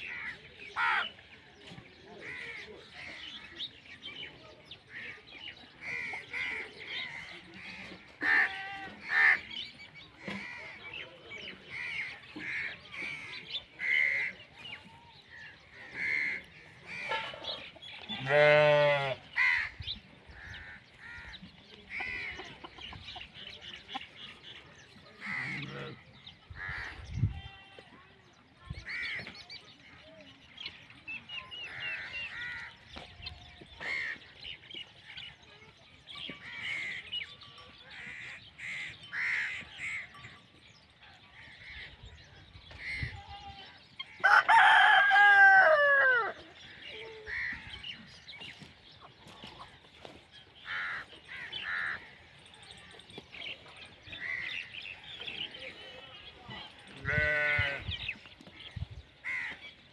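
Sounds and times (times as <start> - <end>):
chickens clucking: 15.8 - 18.0, 19.6 - 27.0, 43.9 - 57.0
rooster crowing: 44.2 - 46.3.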